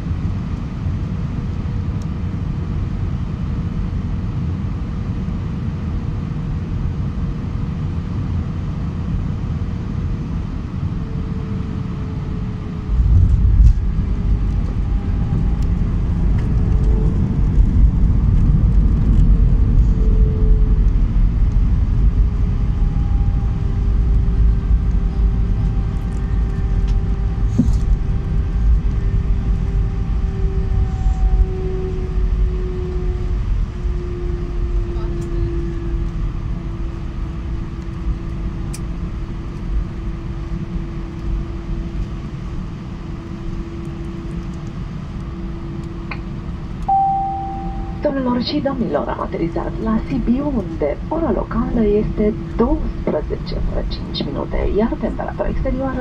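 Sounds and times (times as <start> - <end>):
wheels rumbling on runway: 0.0 - 46.9
jet engine tone falling: 12.0 - 36.5, 43.0 - 56.0.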